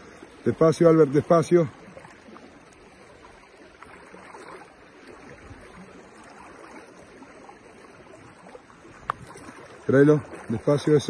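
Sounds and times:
fast-flowing river rushing: 0:00.0 - 0:11.0
faint ticks: 0:09.0 - 0:09.4.

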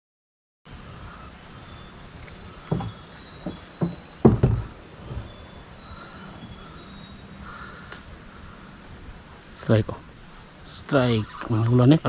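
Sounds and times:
insects droning: 0:00.7 - 0:12.0
short thumps: 0:02.2 - 0:05.6.

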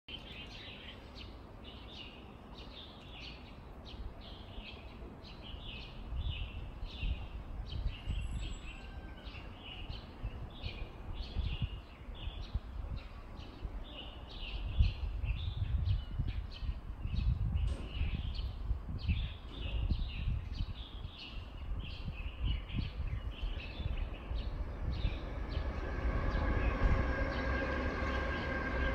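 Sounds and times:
small birds chirping: 0:00.1 - 0:28.9
low rumble: 0:21.8 - 0:28.9.

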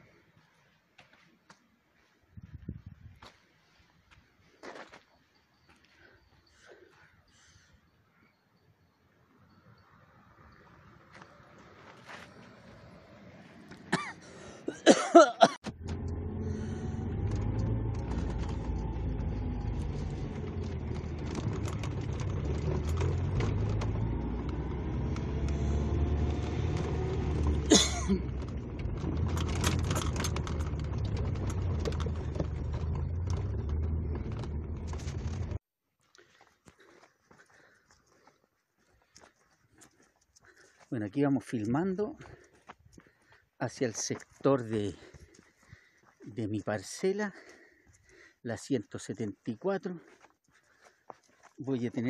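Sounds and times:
pickup truck driving: 0:15.7 - 0:35.6
knocks and rattles: 0:17.1 - 0:35.6.

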